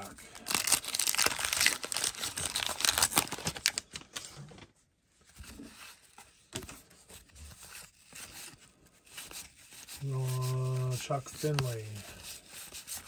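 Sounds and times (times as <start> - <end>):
paper wrapper tearing and crinkling: 0.0 - 4.6, 9.2 - 13.0
cards rustling and sliding: 0.5 - 13.0.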